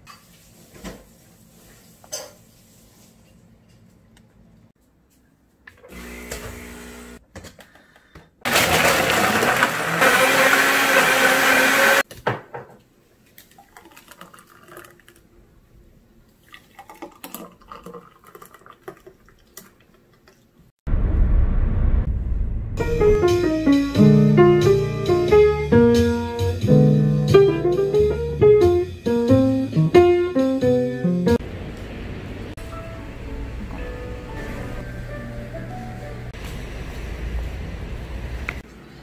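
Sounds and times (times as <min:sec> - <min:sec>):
blender running: 0:05.9 - 0:07.2, 0:08.5 - 0:12.0
loud low rumble: 0:20.9 - 0:23.9.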